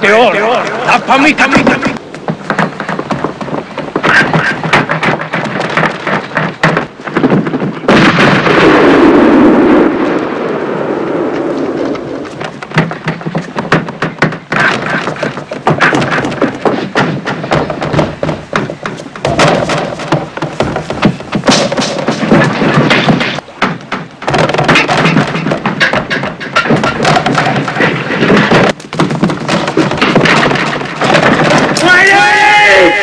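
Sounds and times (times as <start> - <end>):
heavy impacts: 1.1 - 33.0
gunshots: 4.0 - 10.1
rush of noise: 7.8 - 12.8.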